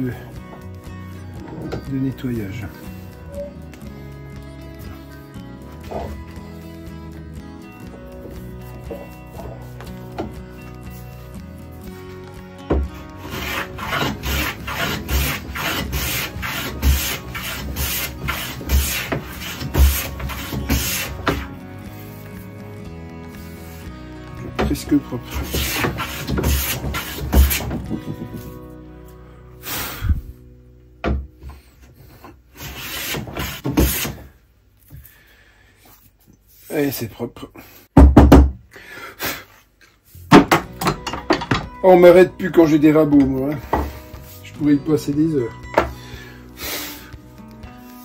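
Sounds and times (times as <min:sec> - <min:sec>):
hand plane scraping wood: 0:08.2 - 0:11.4, 0:12.7 - 0:22.3, 0:24.4 - 0:28.6, 0:32.0 - 0:34.4.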